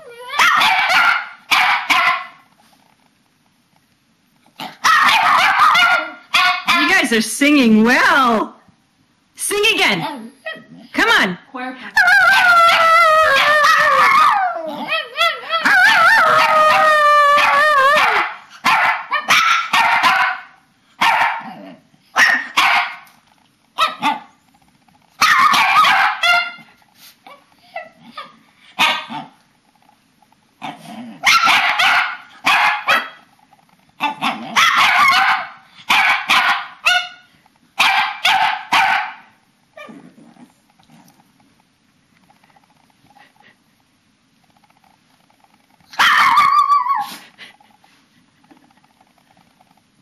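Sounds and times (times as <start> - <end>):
small dogs howling: 0.0 - 1.3, 4.8 - 6.8, 12.0 - 18.4, 45.9 - 47.2
small dogs barking and yipping: 0.0 - 2.4, 4.6 - 7.1, 12.0 - 21.5, 22.1 - 23.2, 23.8 - 24.4, 25.1 - 29.4, 30.6 - 33.3, 33.9 - 40.0, 45.9 - 47.3.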